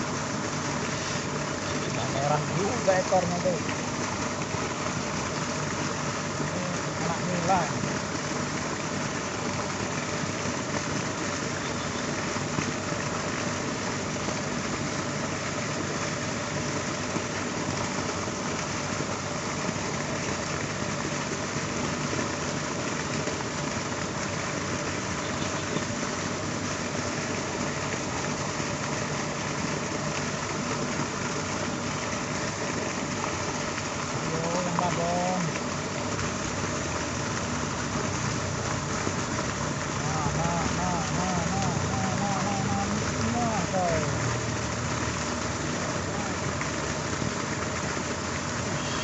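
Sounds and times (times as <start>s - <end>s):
even hiss: 0.0s - 8.0s, 38.2s - 47.0s.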